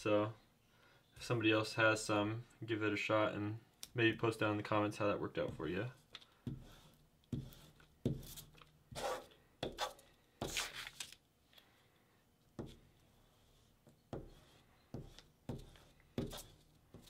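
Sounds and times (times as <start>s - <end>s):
glue stick rubbing on paper: 6.4s - 10.7s
paper rustling: 10.4s - 11.2s.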